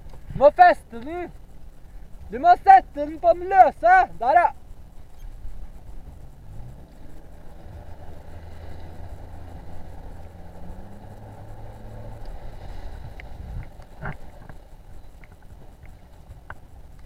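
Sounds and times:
outboard motor running: 0.0 - 17.0
wind noise: 0.0 - 17.0
water wash: 5.2 - 17.0.

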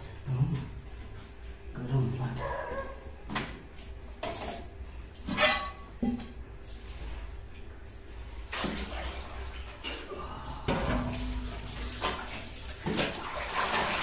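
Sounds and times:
water sloshing and pouring: 8.1 - 14.0.

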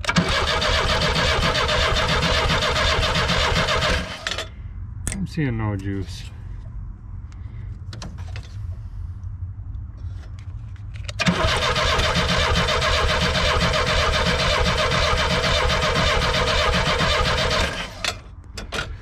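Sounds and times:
car engine starter cranking: 0.0 - 4.5, 11.1 - 18.2.

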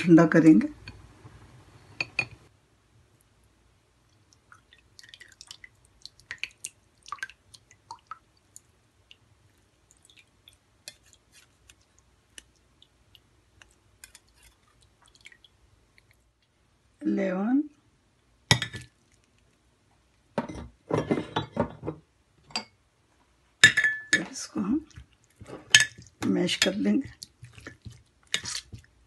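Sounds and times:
faint wet squishes: 3.1 - 16.9, 18.1 - 20.3, 24.2 - 29.0.

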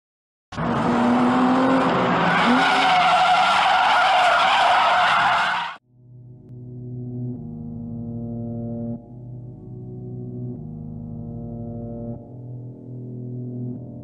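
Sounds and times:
car engine: 0.5 - 5.8
car tyres squealing: 0.6 - 5.8
low droning music: 5.8 - 14.0.

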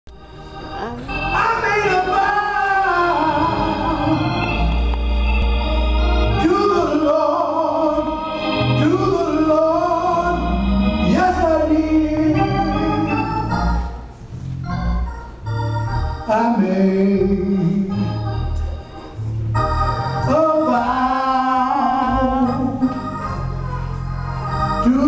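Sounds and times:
organ accompaniment: 0.1 - 25.0
elderly man singing gospel: 0.5 - 4.8, 6.1 - 13.9, 16.2 - 18.4, 20.0 - 23.7, 24.5 - 25.0.

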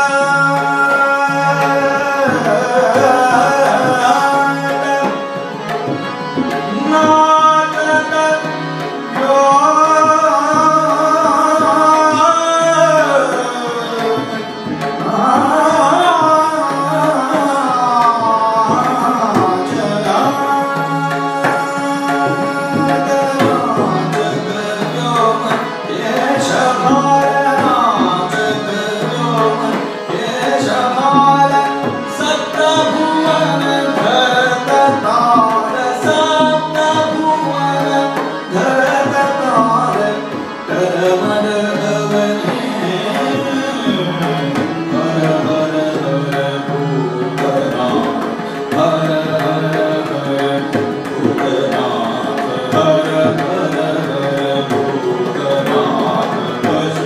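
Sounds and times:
harmonium notes: 0.0 - 57.0
man singing: 0.0 - 57.0
tabla strokes: 14.2 - 46.6.

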